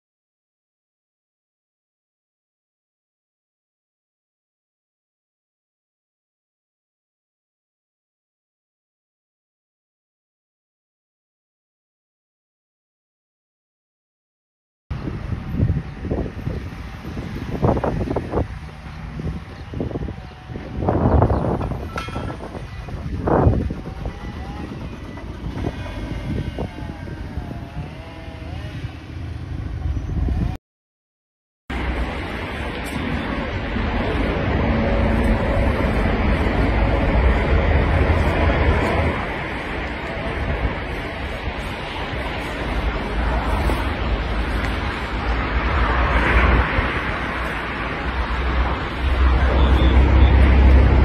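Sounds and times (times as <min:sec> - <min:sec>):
wind on microphone: 0:14.9 - 0:30.6, 0:31.8 - 0:51.0.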